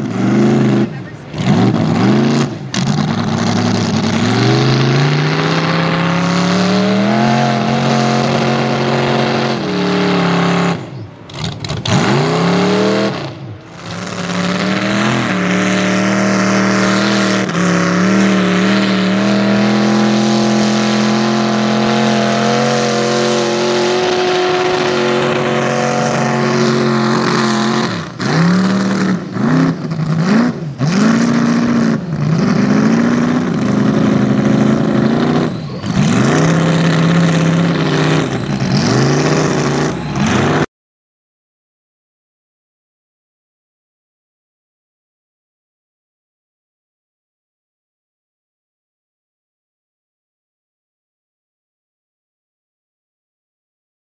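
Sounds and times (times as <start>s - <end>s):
truck engine revving: 0.0s - 40.7s
churning through mud: 13.8s - 40.6s.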